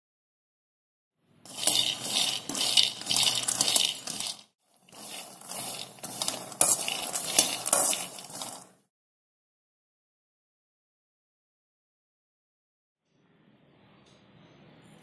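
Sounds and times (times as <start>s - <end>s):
nuts rattling in a metal pan: 1.5s - 8.8s.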